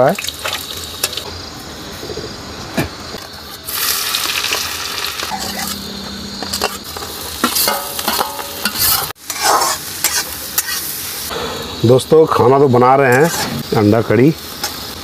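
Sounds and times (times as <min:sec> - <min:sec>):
oil sizzling: 0:00.0 - 0:02.0, 0:03.0 - 0:15.0
metal spatula scraping a pan: 0:05.1 - 0:11.3, 0:13.1 - 0:13.8.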